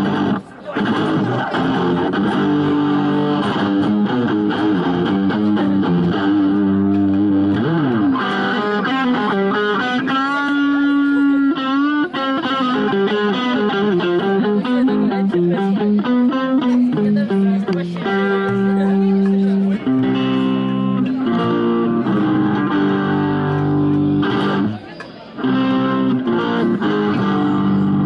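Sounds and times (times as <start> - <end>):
electric guitar blues solo: 0.0 - 28.0.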